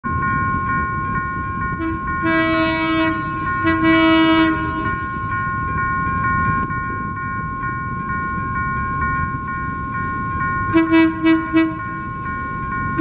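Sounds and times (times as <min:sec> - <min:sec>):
locomotive air horn blasts: 0:01.8 - 0:04.9, 0:10.7 - 0:11.8.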